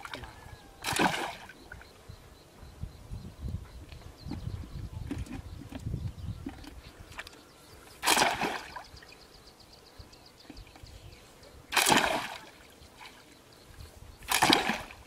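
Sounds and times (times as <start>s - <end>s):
splashes in shallow water: 0.0s - 1.9s, 8.0s - 8.9s, 11.7s - 13.2s, 14.3s - 15.0s.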